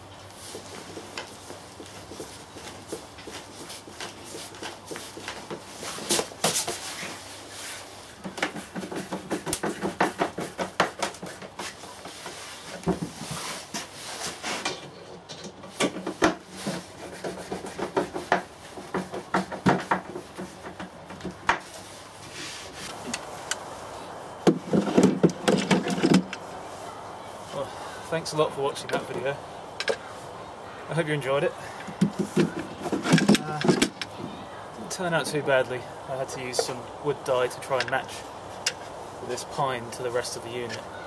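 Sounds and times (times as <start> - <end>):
wood scraping and rasping: 16.4 - 20.8.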